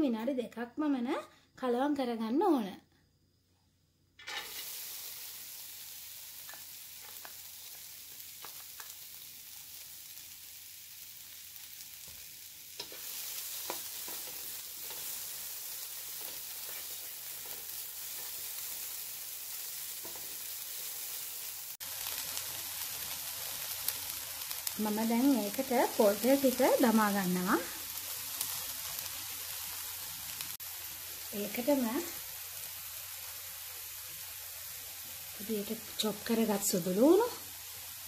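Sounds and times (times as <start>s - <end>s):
onions sizzling in a wok: 4.1s - 38.0s
spatula scraping and tapping: 12.8s - 15.1s.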